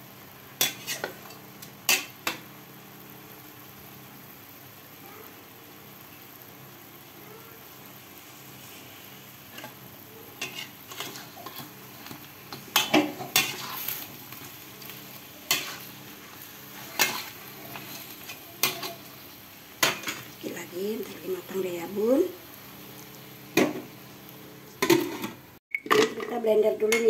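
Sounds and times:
chicken sizzling in a wok: 0.0 - 25.6
metal ladle scraping a wok: 10.4 - 14.1.

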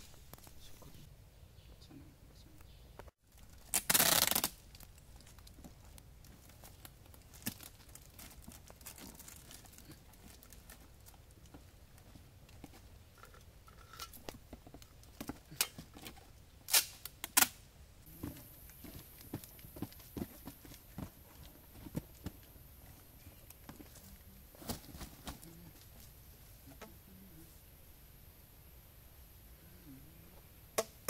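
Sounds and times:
rustles and clicks of handling: 3.0 - 16.4, 18.1 - 27.0
tape ripping off roll: 3.4 - 4.9, 16.7 - 17.6.

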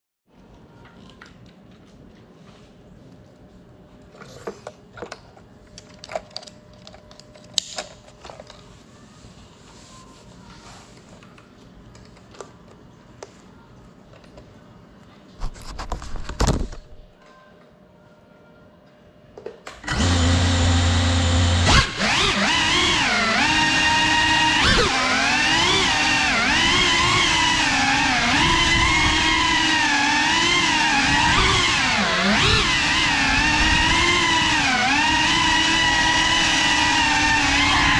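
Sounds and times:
quadcopter motors whining: 19.8 - 37.9.

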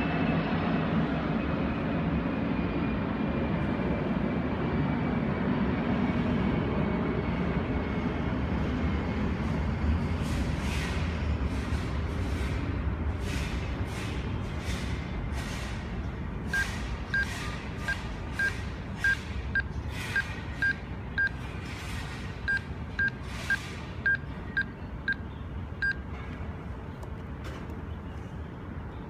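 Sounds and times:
barcode scanner beeps: 16.5 - 21.4, 22.5 - 25.2, 25.8 - 26.0.

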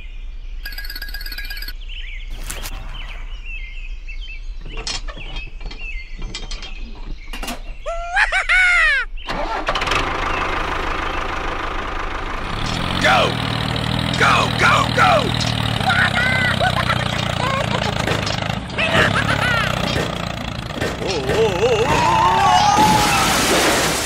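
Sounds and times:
tractor engine running: 9.3 - 22.4.

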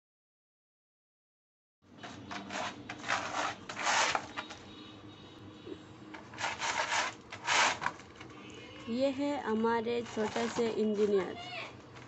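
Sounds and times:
puppy scratching at doormat: 2.0 - 4.6, 6.2 - 8.3, 9.9 - 12.0.

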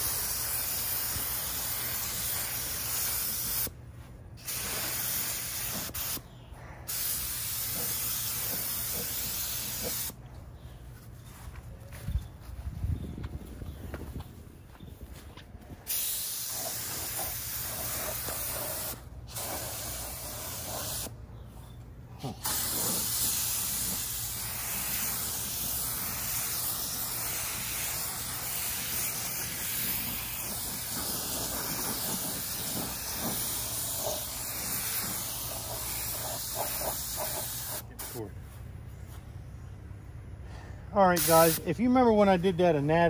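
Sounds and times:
spray gun hissing: 0.0 - 3.7, 4.4 - 6.2, 6.9 - 10.2, 15.9 - 21.1, 22.4 - 38.3, 41.2 - 41.7.

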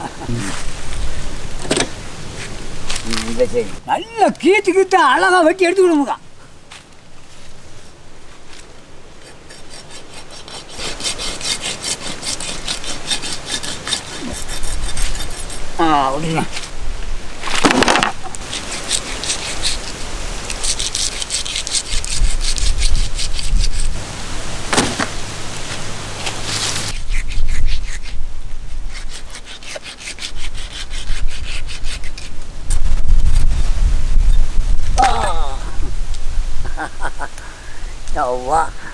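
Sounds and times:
cleaver sawing through flesh: 9.2 - 15.7, 18.4 - 24.0, 26.5 - 32.3
skin rasping against bark: 9.2 - 16.6, 18.3 - 24.0, 26.4 - 32.4.

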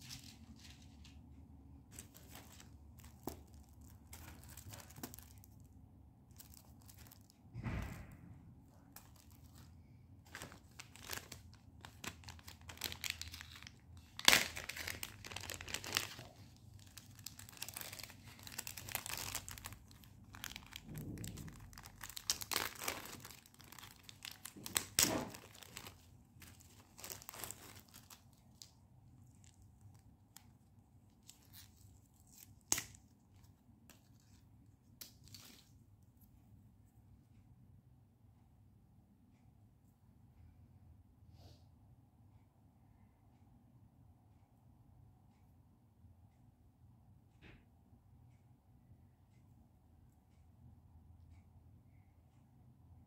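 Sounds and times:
packaging crinkling and tearing: 1.9 - 5.7, 6.3 - 7.4, 8.8 - 34.4.

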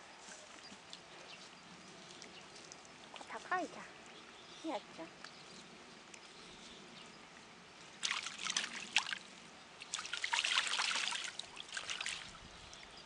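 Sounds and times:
duck splashing water with wings: 8.0 - 12.4.

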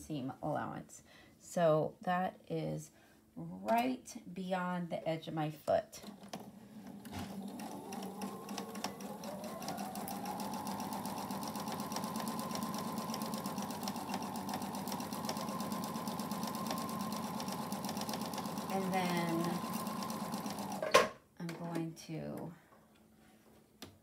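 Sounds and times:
sewing machine stitching: 6.0 - 21.1.

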